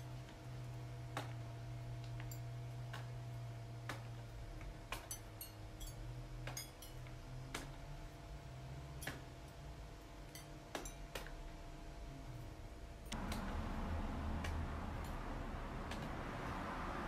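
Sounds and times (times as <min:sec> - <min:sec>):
low hum: 0:12.0 - 0:17.0.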